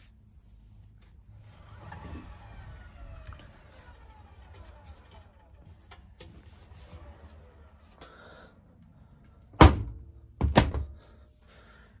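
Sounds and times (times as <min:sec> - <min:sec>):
washing machine door thudding shut: 0:09.6 - 0:11.0.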